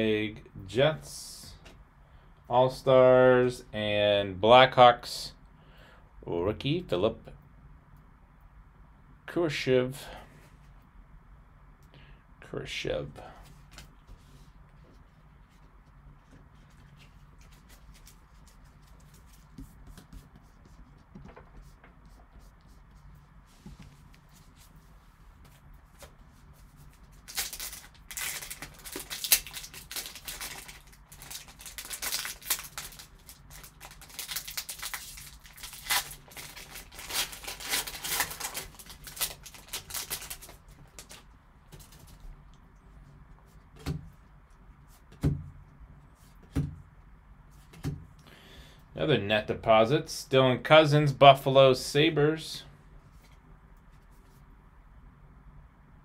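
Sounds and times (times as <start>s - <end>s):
foil wrapper tearing and crinkling: 27.2s - 41.2s.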